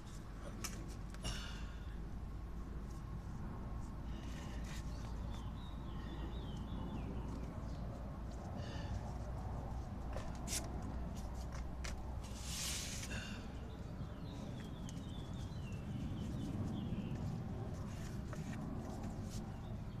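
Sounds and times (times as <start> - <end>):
low steady background noise: 0.0 - 20.0
faint chirping bird: 4.1 - 9.0, 13.0 - 20.0
short rustle: 9.1 - 13.2.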